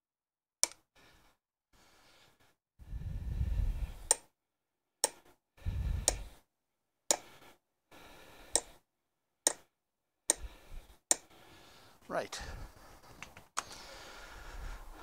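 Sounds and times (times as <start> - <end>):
hammer tapping steel punch: 7.1 - 7.3, 9.4 - 9.7, 11.1 - 11.3.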